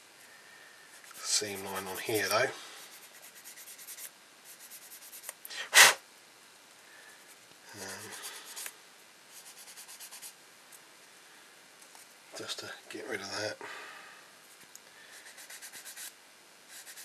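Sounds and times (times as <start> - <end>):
short sharp loud burst: 5.7 - 6.0.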